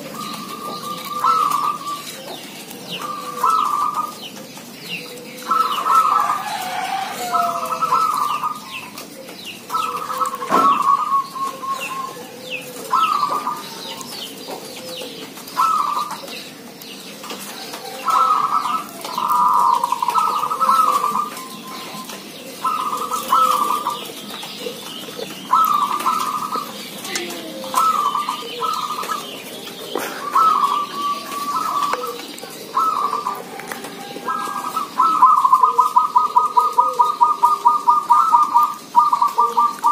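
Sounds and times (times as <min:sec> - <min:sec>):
doves cooing: 0:00.0 - 0:39.9.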